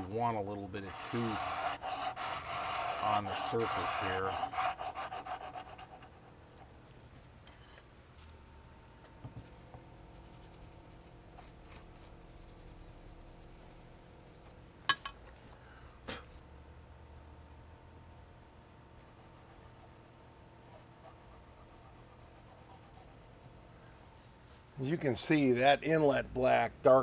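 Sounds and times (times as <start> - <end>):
faint steady hum: 0.0 - 27.0
soft brushing: 0.5 - 5.8.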